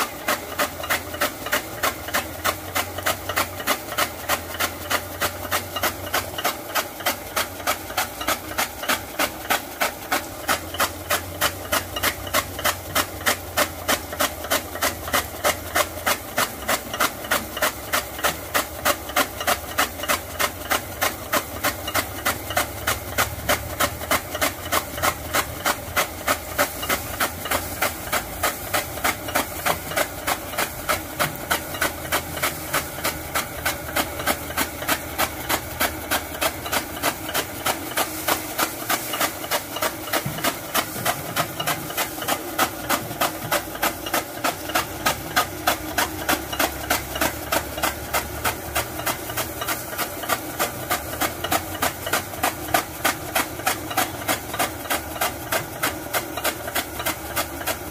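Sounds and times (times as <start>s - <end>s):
blades chopping straw: 0.0s - 57.9s.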